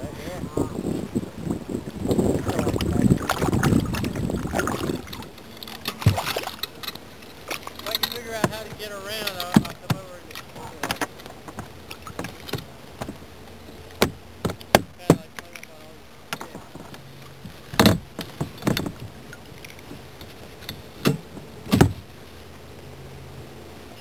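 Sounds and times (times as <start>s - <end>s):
gear knocking on kayak hull: 2.2s - 6.6s, 7.7s - 15.4s, 17.8s - 19.1s.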